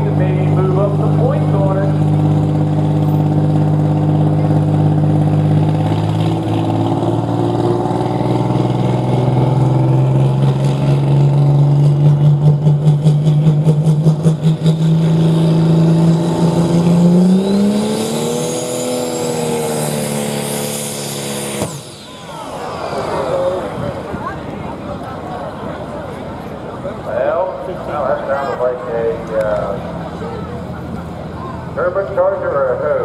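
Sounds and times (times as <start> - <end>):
diesel tractor engine running: 0.0 - 33.0
turbo whine: 14.1 - 24.4.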